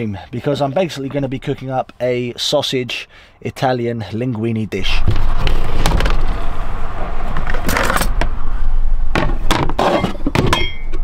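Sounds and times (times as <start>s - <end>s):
kitchen things knocking and clattering: 9.2s - 10.9s.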